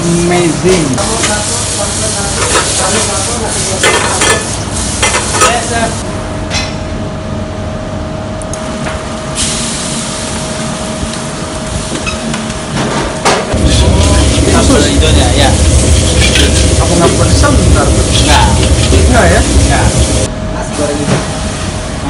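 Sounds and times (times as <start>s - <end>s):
steady hum: 0.0s - 22.0s
food sizzling in wok: 1.0s - 6.0s, 13.5s - 20.3s.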